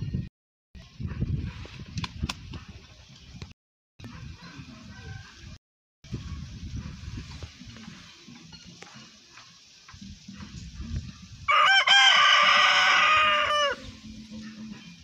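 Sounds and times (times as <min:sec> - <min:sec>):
rooster crowing: 0:11.5 - 0:13.9.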